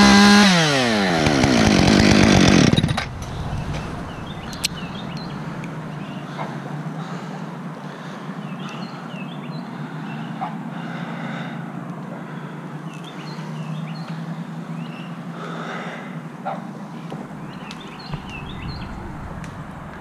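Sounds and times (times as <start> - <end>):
chainsaw engine idling: 1.1 - 5.6
bird chirping: 17.1 - 20.0.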